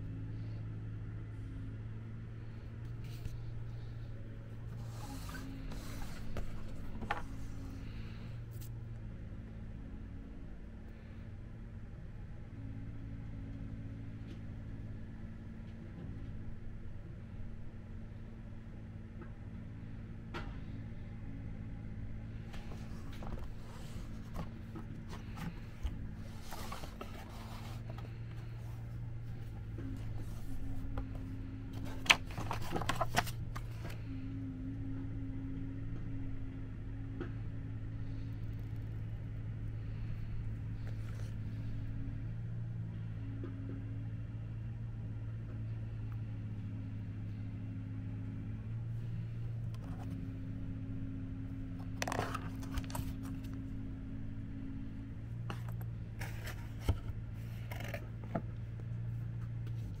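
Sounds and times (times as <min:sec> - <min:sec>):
low mechanical hum: 0:00.0 - 1:00.0
handling clicks and rustling: 0:02.9 - 0:08.7, 0:22.4 - 0:34.0, 0:51.7 - 0:53.8.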